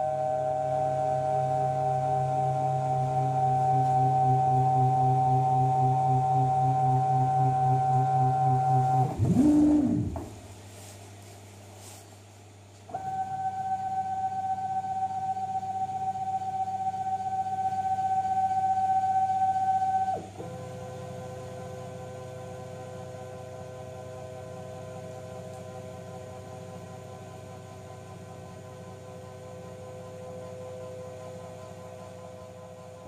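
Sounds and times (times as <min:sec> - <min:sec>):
cnc router motors whining: 0:00.0 - 0:10.3.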